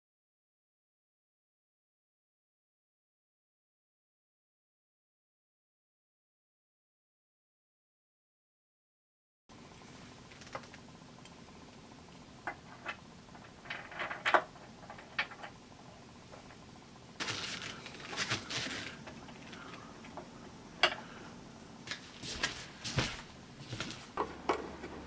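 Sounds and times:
rustling and scraping: 17.2s - 20.2s, 21.9s - 25.0s.

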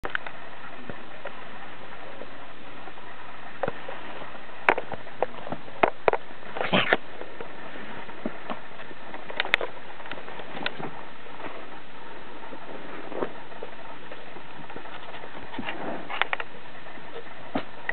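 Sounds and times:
steady hiss: 0.0s - 17.9s
puppy sniffing and scrabbling: 14.7s - 16.5s.

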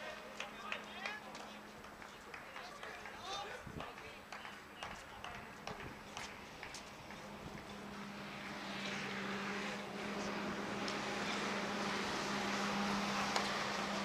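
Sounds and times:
distant engine drone: 4.0s - 14.0s.

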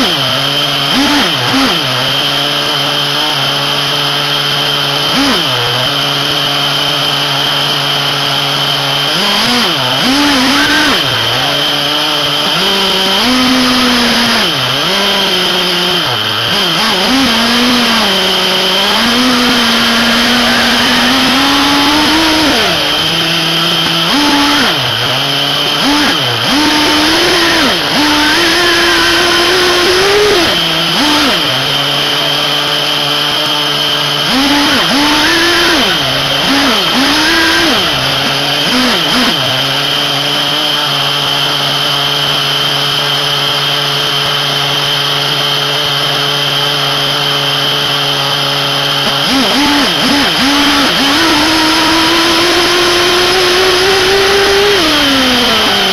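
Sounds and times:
model car engine revving: 0.0s - 55.9s
high whine: 16.0s - 45.0s.

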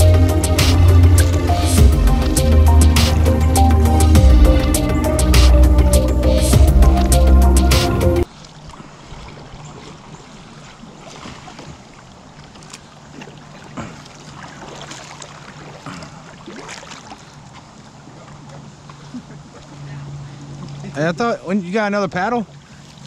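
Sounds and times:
wind: 0.0s - 23.0s
paddle splashing water: 6.5s - 23.0s.

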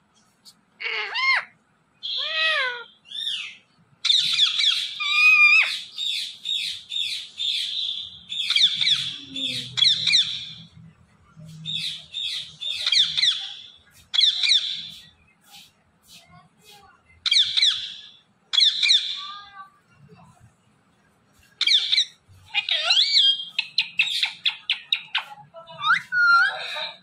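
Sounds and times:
parakeet chattering: 0.8s - 10.7s, 11.7s - 15.1s, 17.2s - 19.4s, 21.5s - 27.0s.

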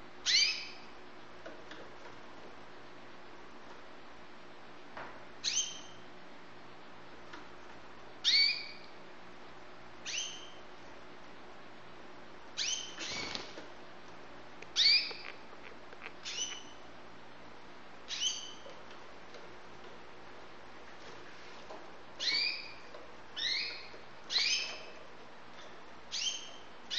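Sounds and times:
canary chirping: 0.2s - 0.9s, 5.4s - 6.0s, 8.2s - 9.0s, 10.0s - 10.7s, 12.6s - 13.5s, 14.7s - 16.9s, 18.0s - 18.8s, 22.2s - 26.9s.

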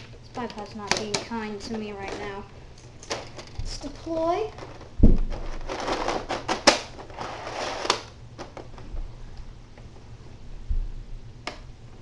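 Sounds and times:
plastic clicks and rattles: 0.3s - 2.3s, 3.0s - 3.7s.

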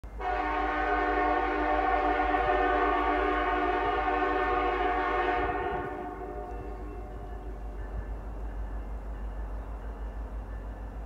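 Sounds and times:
locomotive air horn chord: 0.1s - 7.6s.

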